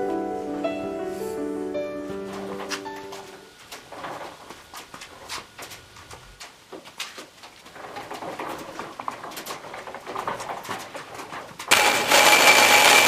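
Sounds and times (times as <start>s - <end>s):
handling clicks and rustling: 2.2s - 11.8s
electric drill whining: 11.7s - 13.0s.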